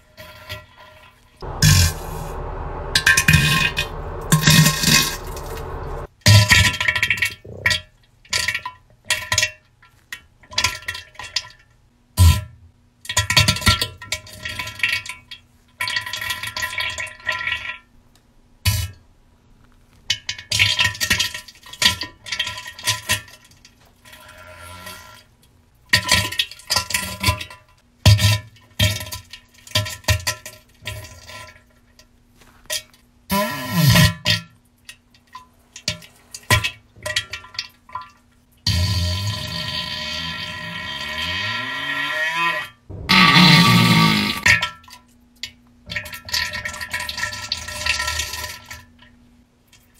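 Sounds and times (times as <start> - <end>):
low thump: 1.4 - 6.1, 42.9 - 44.4
wet sputtering fart bursts: 42.9 - 44.5.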